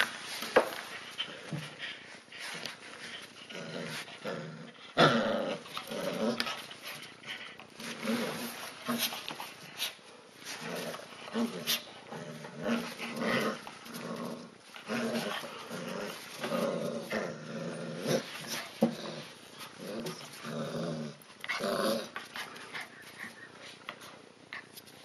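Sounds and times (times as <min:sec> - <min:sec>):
puppies growling: 0:00.7 - 0:09.7, 0:10.4 - 0:24.8.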